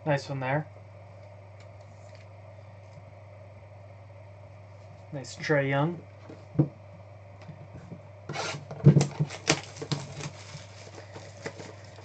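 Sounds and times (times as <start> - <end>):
knock on cardboard box: 6.6 - 6.8, 8.7 - 9.4
packaging rustling: 8.4 - 12.0
cardboard and foil clicks: 8.8 - 12.0.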